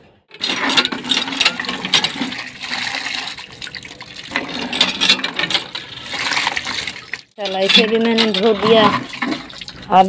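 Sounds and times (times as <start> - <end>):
tap water pouring into bucket: 1.6 - 4.8, 5.6 - 7.3, 8.6 - 9.9.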